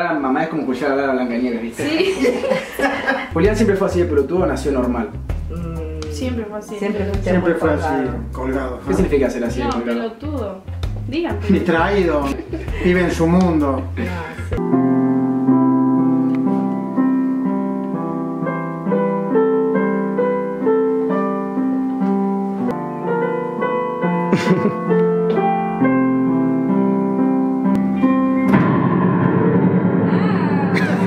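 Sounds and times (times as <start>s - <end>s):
digital piano melody: 1.9s - 31.0s.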